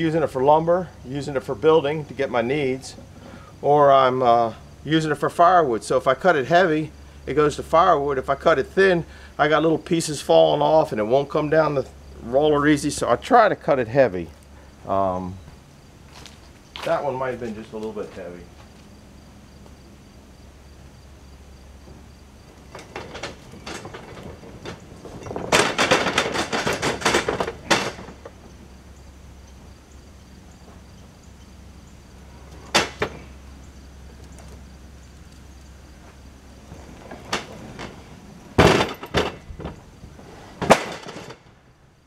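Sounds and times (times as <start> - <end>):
wood slabs knocking on conveyor: 22.7 - 28.4, 38.6 - 39.8.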